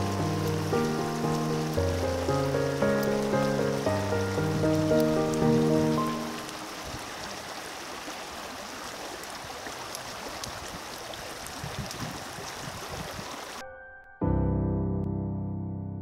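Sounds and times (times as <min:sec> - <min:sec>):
grass fire rushing and crackling: 0:00.0 - 0:07.8, 0:09.2 - 0:13.6.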